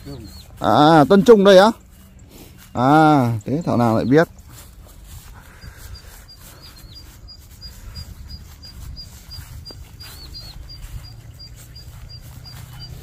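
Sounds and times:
small animal chirping: 5.5 - 13.0.

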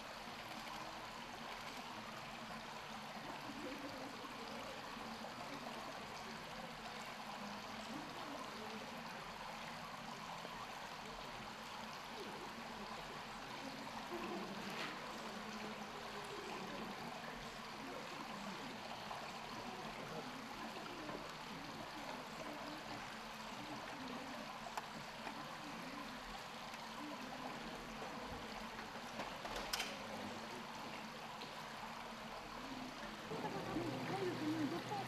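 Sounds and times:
running water: 0.0 - 35.0.

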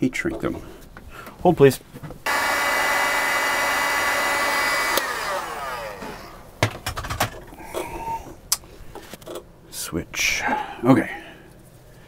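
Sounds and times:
fan winding down: 2.3 - 6.6
heat gun blowing: 2.3 - 6.6
heat gun switch click: 4.8 - 5.2.

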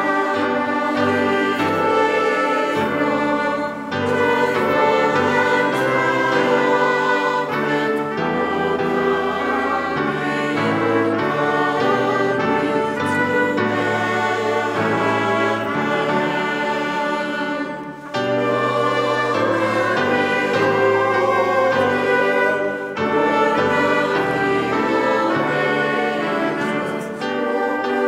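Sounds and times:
church choir singing: 0.0 - 28.0
instrumental accompaniment low notes: 0.0 - 28.0.

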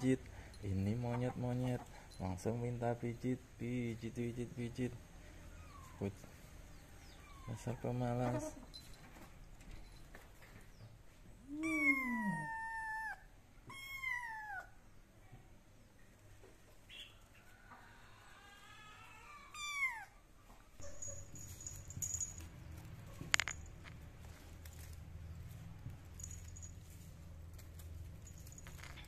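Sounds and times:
kitten meowing: 11.4 - 14.7, 18.9 - 20.2.

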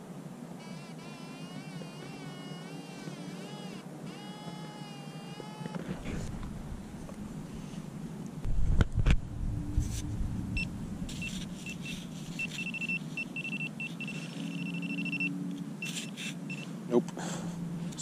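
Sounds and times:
low handling thumps: 6.0 - 7.6
pinpointer beeping: 10.6 - 16.7.

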